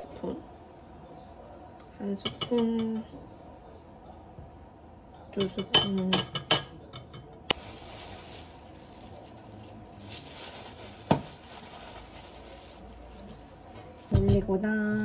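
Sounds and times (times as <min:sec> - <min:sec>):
plastic bag rustling: 0:07.5 - 0:15.0.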